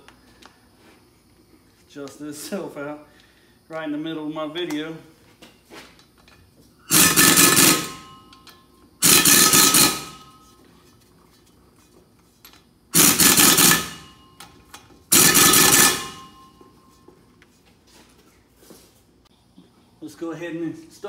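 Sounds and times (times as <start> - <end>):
pneumatic impact wrench hammering: 6.9 - 10.5, 12.5 - 16.6.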